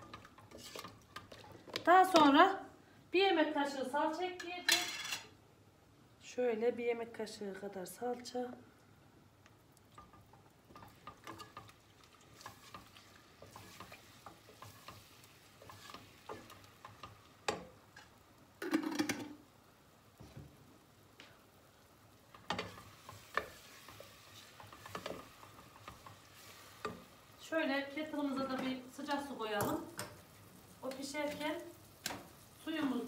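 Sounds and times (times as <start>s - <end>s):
wooden spoon scraping pot: 0.0s - 1.7s, 10.0s - 18.1s, 22.5s - 27.1s
low sizzle: 0.0s - 33.0s.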